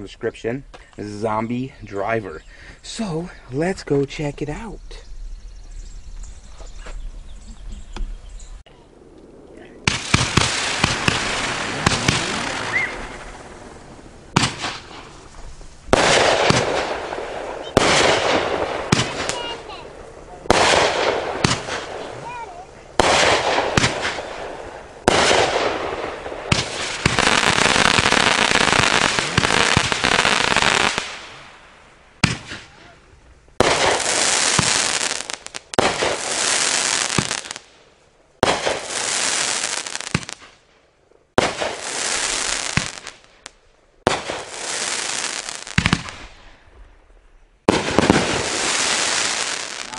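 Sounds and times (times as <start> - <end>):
fireworks crackling hiss: 9.5 - 46.7, 47.6 - 49.9
fireworks cake firing: 9.8 - 31.6, 32.2 - 33.0, 33.6 - 37.8, 38.4 - 40.7, 41.3 - 46.6, 47.6 - 49.9.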